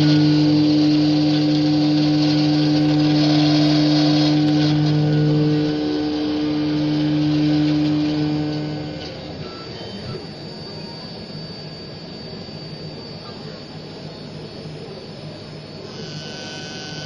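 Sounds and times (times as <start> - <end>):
cutter hissing in metal: 0.0 - 9.1
router motor hum: 0.0 - 17.0.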